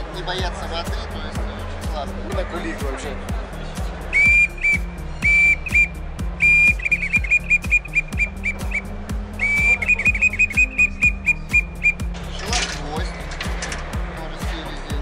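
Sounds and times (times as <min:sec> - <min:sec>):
reed hunting call: 0:04.2 - 0:12.0.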